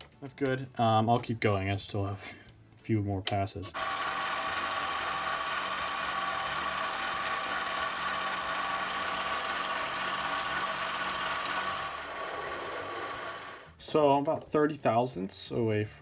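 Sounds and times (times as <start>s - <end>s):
lathe motor whine: 3.8s - 13.7s.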